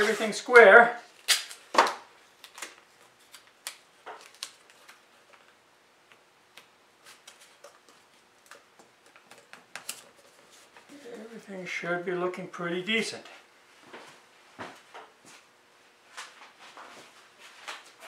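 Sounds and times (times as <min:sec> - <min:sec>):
tape ripping off roll: 0:01.1 - 0:04.9.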